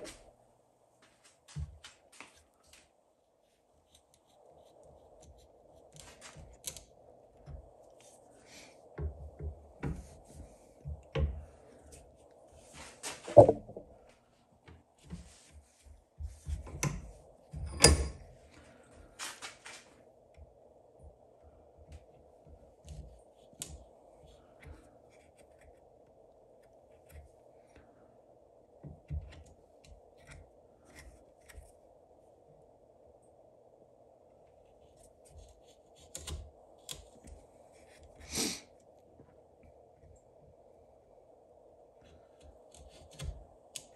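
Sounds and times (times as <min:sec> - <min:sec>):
knife carving wood: 0:03.8 - 0:08.1, 0:22.7 - 0:27.4, 0:29.7 - 0:31.8, 0:34.7 - 0:38.3, 0:42.1 - 0:43.9.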